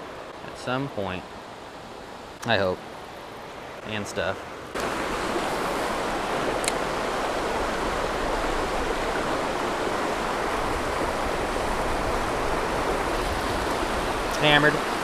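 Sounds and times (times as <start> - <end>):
water rushing over rocks: 2.4 - 15.0.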